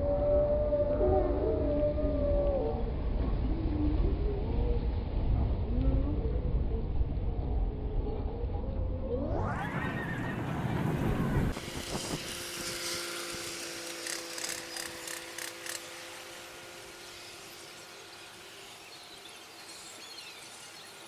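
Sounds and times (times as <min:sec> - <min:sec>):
steady hum: 0:08.8 - 0:21.0.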